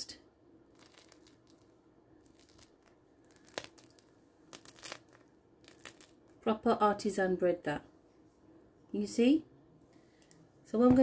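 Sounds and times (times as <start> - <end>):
bread crust crackling: 0.7 - 6.3.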